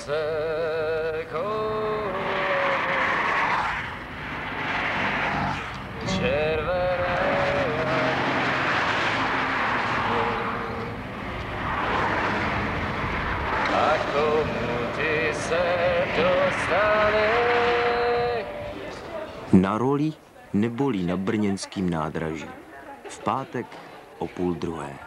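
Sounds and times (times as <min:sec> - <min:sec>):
cars driving past: 0:00.0 - 0:21.3
person singing with vibrato: 0:06.0 - 0:08.6.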